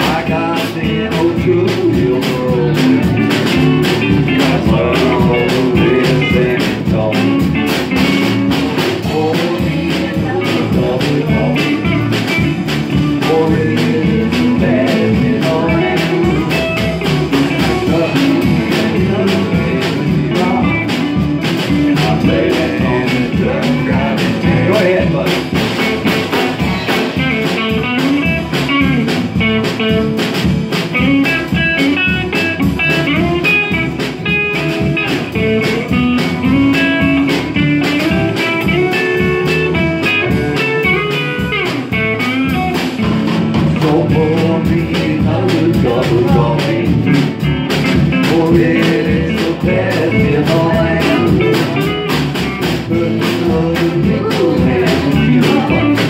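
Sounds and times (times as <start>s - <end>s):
acoustic guitar: 0.0s - 56.0s
electric guitar: 0.0s - 56.0s
woman singing: 9.0s - 11.9s, 43.8s - 47.3s, 48.2s - 52.2s, 53.0s - 56.0s.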